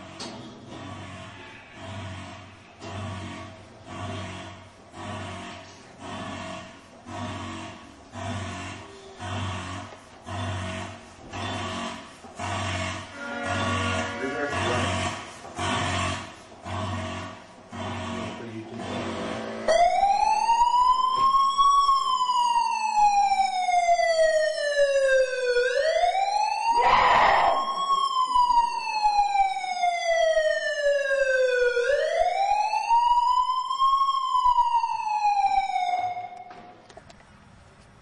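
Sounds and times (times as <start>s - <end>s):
siren wailing: 13.1s - 15.2s, 19.6s - 36.6s.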